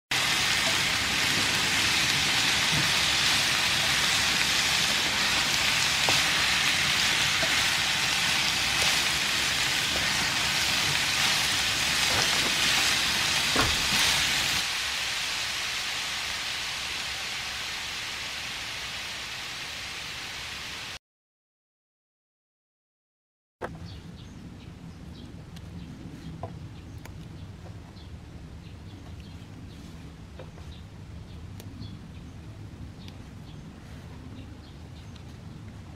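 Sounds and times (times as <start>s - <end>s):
vegetables sizzling in frying pan: 0.1s - 21.0s.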